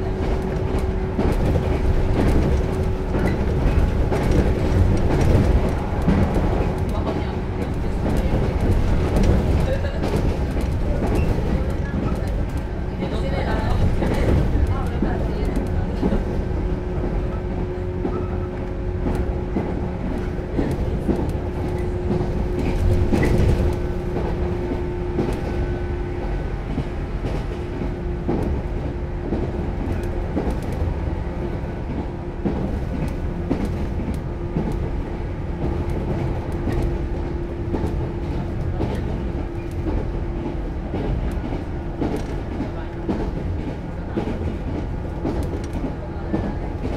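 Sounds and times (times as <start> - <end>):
train wheels rumbling: 0.0 - 46.9
wheels clicking over rail joints: 0.1 - 46.9.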